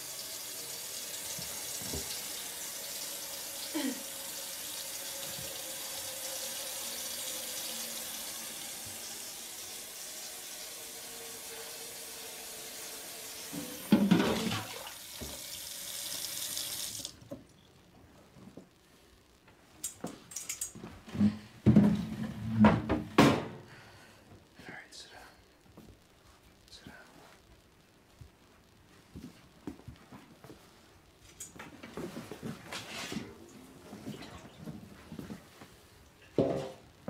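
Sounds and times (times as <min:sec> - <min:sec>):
tap water running into sink: 0:00.0 - 0:17.2.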